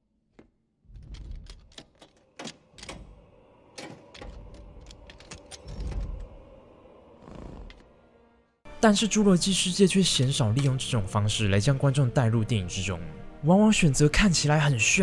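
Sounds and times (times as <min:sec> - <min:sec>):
door handle latch clicking and rattling: 0:01.1 - 0:03.2.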